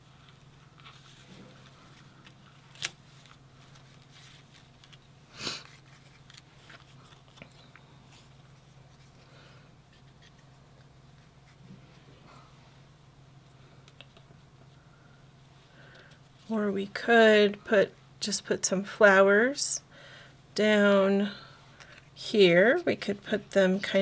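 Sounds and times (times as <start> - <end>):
steady low hum: 0.0 - 24.0
paper rustling: 0.2 - 5.0, 5.6 - 9.2.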